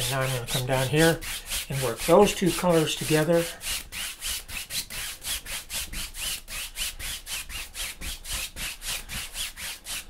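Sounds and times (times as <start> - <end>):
paintbrush scrubbing on canvas: 0.0 - 10.0.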